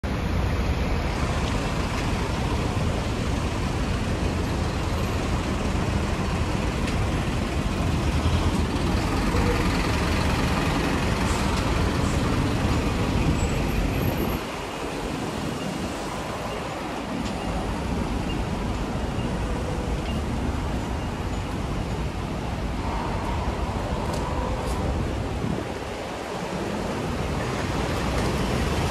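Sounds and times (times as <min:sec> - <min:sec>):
city street traffic: 0:00.0 - 0:28.9
truck engine rumbling: 0:01.4 - 0:28.9.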